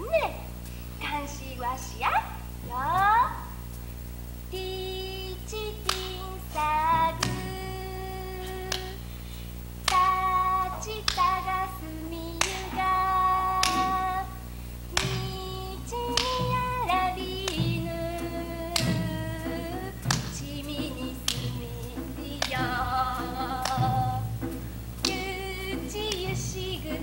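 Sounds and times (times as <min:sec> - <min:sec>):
woman singing slow song: 0:04.5 - 0:09.2, 0:09.8 - 0:24.4, 0:25.0 - 0:27.0
sharp strokes: 0:09.9 - 0:27.0.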